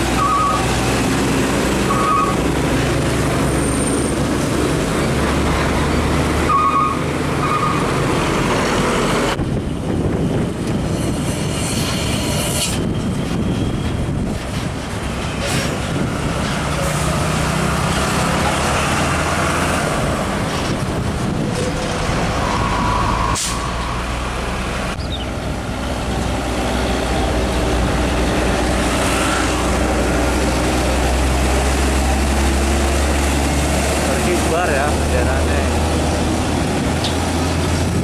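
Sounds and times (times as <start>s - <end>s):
truck diesel engines: 0.0s - 38.0s
tyre and road noise: 0.0s - 38.0s.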